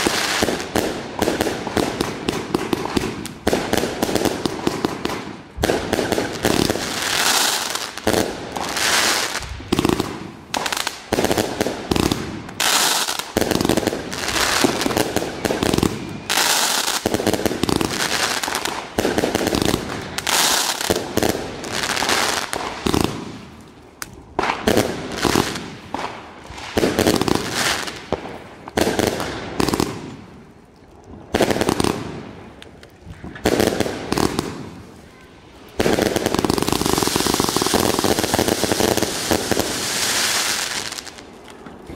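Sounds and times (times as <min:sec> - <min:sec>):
fireworks stars bursting: 0:33.4 - 0:41.2.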